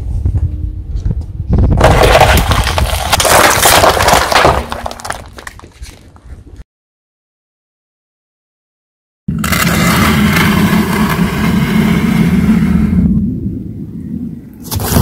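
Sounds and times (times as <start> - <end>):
tyre crushing cardboard boxes: 1.8 - 6.0
low rumble: 9.5 - 15.0.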